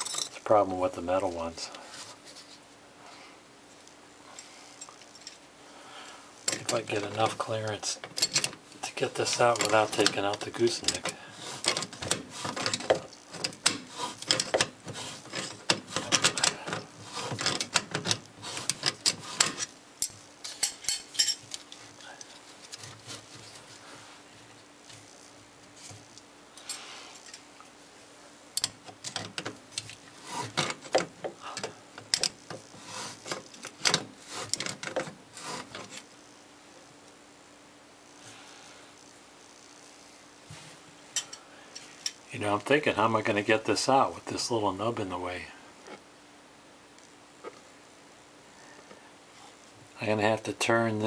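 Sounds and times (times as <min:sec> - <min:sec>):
metal parts scraping: 0:00.0 - 0:00.4, 0:09.2 - 0:23.2.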